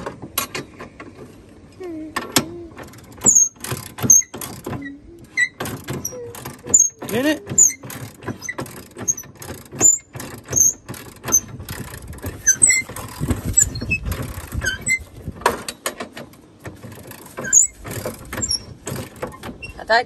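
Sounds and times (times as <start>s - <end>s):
mechanical clatter: 2.2s - 19.9s
short high squeaks: 2.4s - 11.6s, 12.3s - 15.2s, 17.2s - 19.8s.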